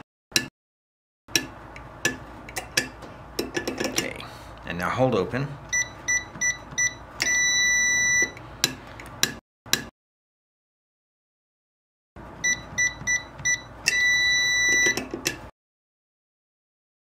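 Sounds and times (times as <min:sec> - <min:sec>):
keypad beeping: 0:05.7 - 0:08.4, 0:12.4 - 0:15.1.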